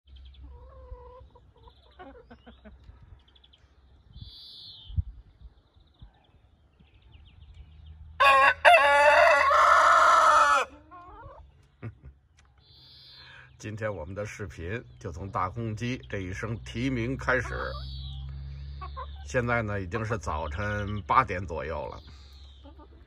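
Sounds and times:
faint bird calls: 0.1s - 7.3s, 12.6s - 13.6s
rooster crowing: 8.2s - 10.7s.

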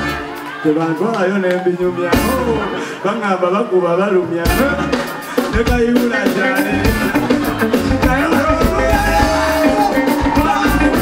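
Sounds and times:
drum kit: 0.0s - 1.2s, 1.9s - 2.8s, 4.4s - 11.0s
guitar: 0.0s - 3.0s, 4.1s - 11.0s
person singing: 4.6s - 11.0s.

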